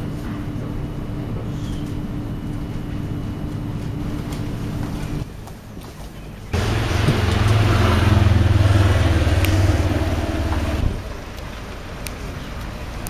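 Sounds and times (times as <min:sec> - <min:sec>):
vehicle engine running: 0:06.4 - 0:12.9.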